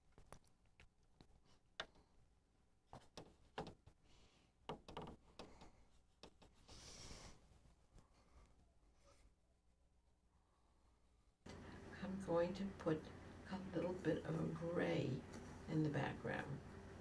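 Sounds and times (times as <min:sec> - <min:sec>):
paintbrush tapping and scrubbing: 0:02.9 - 0:04.0, 0:04.6 - 0:06.9.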